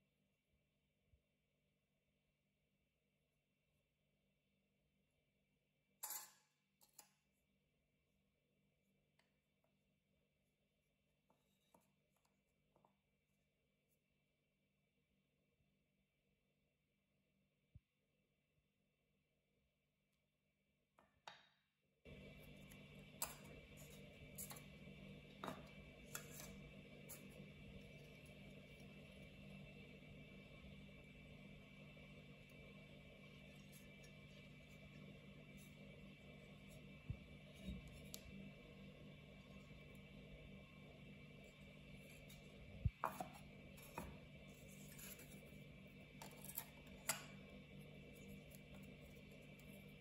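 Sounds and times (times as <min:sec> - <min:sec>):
faint steady hum: 0:22.1 - 0:50.0.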